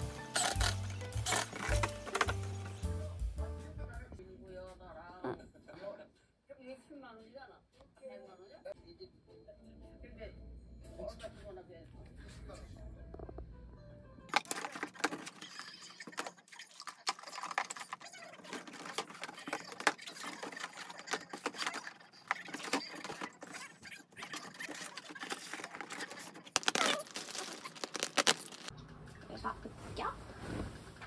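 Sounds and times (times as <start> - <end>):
plastic wrapping rustling: 0.0 - 2.8, 14.3 - 28.7
items knocking together: 0.1 - 2.8, 14.3 - 28.7
plastic drawers opening: 0.3 - 2.8, 14.3 - 16.4, 17.1 - 28.7.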